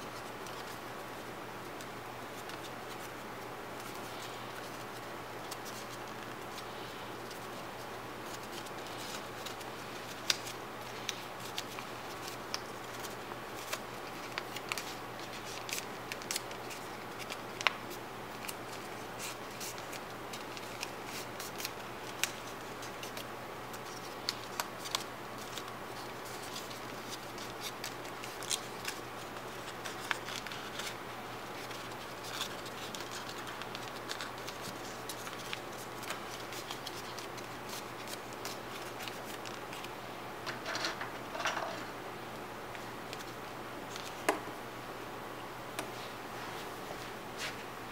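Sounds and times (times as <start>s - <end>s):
paper crinkling: 3.8s - 41.9s, 42.7s - 44.4s.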